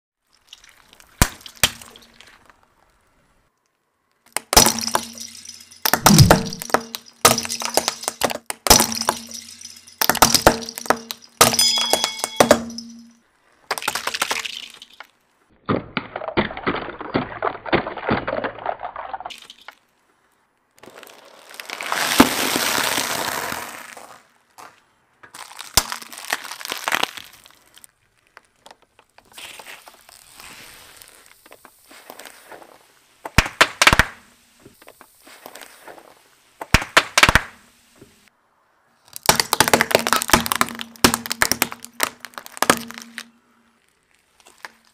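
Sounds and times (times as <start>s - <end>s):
plastic pieces cracking: 25.3s - 29.3s, 39.0s - 44.9s.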